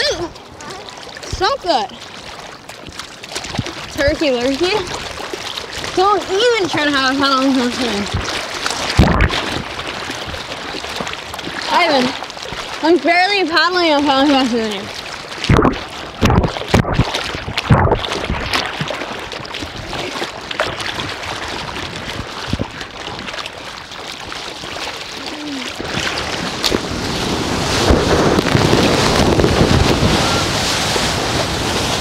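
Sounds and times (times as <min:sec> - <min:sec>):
ocean surf washing: 0:00.0 - 0:24.0, 0:24.6 - 0:32.0
sharp water splashes: 0:00.0 - 0:32.0
wind on microphone: 0:03.4 - 0:12.7, 0:15.4 - 0:23.3, 0:25.3 - 0:32.0.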